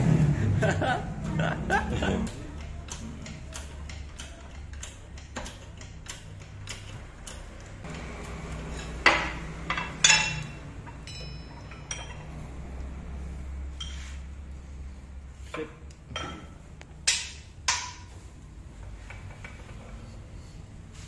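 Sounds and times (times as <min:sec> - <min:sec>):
faint regular ticking: 0:02.3 - 0:07.9
steel parts clinking: 0:08.5 - 0:13.0, 0:13.7 - 0:14.3
ringing metal clank: 0:09.0 - 0:12.6.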